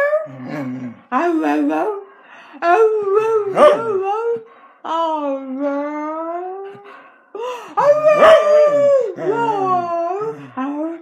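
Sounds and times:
dog howling: 7.8 - 10.4
person singing: 7.8 - 11.0.

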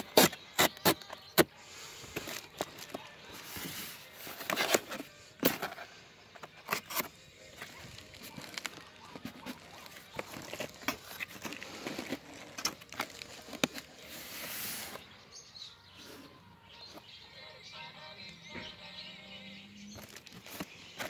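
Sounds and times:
plastic wrap rustle: 6.6 - 15.0
stretch wrap crinkling: 6.7 - 15.0.

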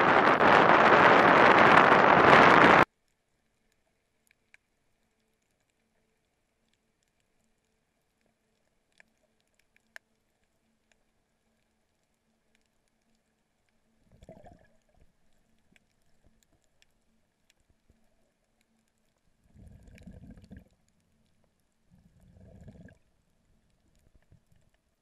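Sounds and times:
underwater water rushing: 0.0 - 2.8
faint clicks: 2.8 - 22.2, 22.8 - 25.0.

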